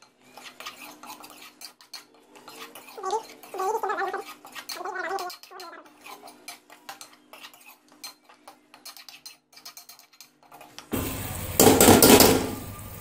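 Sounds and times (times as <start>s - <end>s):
metal ladle scraping a pan: 0.0s - 12.7s
loud frying sizzle: 9.2s - 13.0s.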